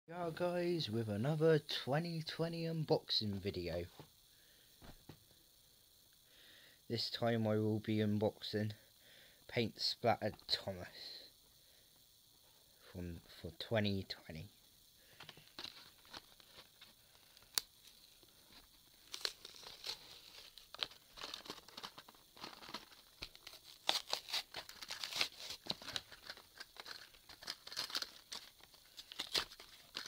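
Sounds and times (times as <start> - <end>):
packaging crackling and ripping: 19.0 - 30.0.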